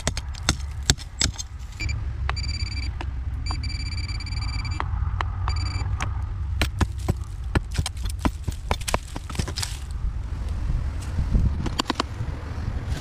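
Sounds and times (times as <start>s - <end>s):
metal blade chipping brick: 0.0s - 1.6s, 6.6s - 9.8s
steady low rumble: 0.0s - 13.0s
pinpointer alert tone: 1.8s - 4.8s, 5.5s - 5.9s.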